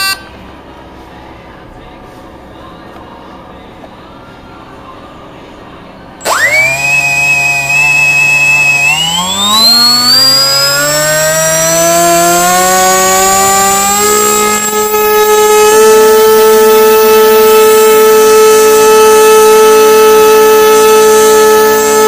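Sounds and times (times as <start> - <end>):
electric motor whining: 6.2 - 22.0.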